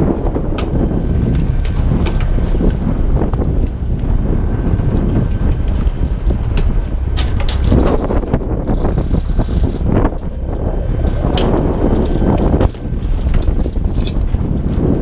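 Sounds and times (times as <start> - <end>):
wind buffeting microphone: 0.0 - 15.0
fishing gear clicking and knocking: 5.2 - 14.7.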